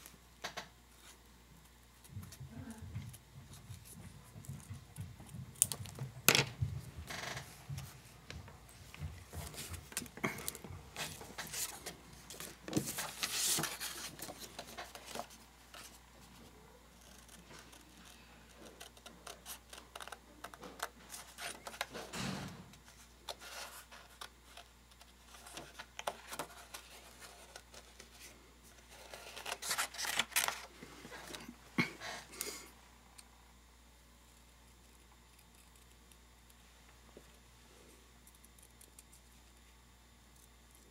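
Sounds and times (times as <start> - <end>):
paper rustling: 9.2 - 16.4, 22.8 - 31.5.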